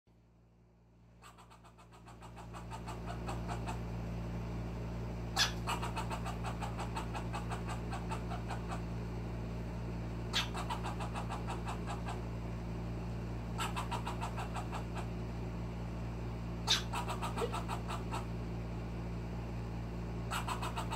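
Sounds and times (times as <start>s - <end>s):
squirrel alarm call chucks: 1.2s - 3.8s, 5.4s - 8.9s, 10.3s - 12.3s, 13.6s - 15.2s, 16.7s - 18.3s, 20.3s - 20.9s.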